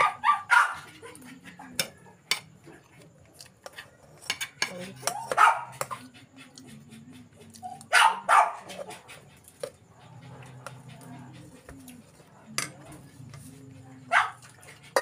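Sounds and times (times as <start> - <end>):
dog barking: 0.0 - 1.2, 5.1 - 6.0, 7.8 - 8.8, 14.0 - 15.0
spoons clinking on bowls: 3.6 - 5.9, 12.5 - 13.4.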